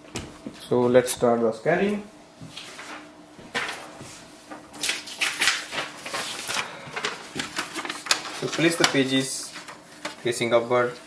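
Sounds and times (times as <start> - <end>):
paper rustling: 2.6 - 10.4.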